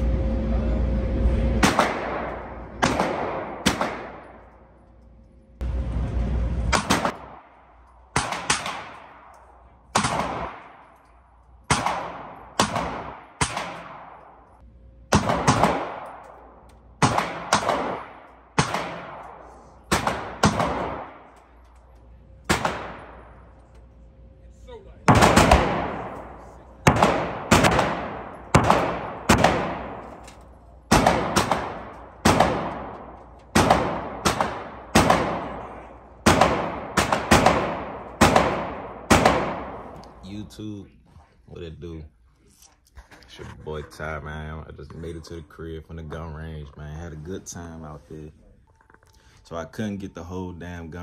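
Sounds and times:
gunshots with echo: 1.6 - 4.5, 6.7 - 9.3, 9.9 - 10.9, 11.6 - 14.4, 15.1 - 16.2, 17.0 - 21.4, 22.5 - 23.4, 25.1 - 30.2, 30.9 - 40.0.

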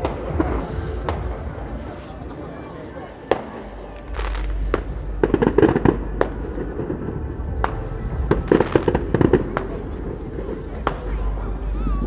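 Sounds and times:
distant fireworks bangs: 0.0 - 2.3, 3.2 - 11.2
low rumble: 3.9 - 12.0.

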